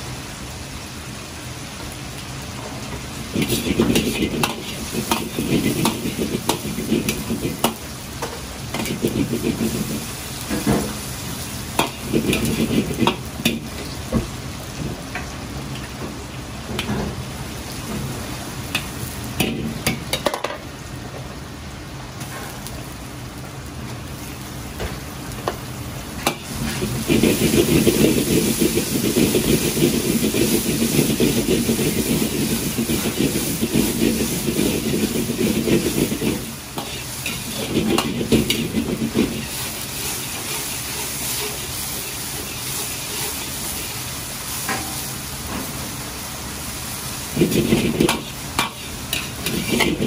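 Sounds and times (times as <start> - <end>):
sizzling in hot oil: 0.0 - 50.0
metal ladle scraping a wok: 29.7 - 43.8, 47.4 - 50.0.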